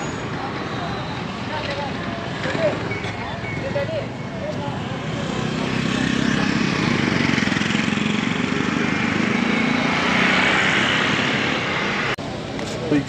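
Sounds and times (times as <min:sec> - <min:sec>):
motorcycle engine running: 0:05.0 - 0:10.2.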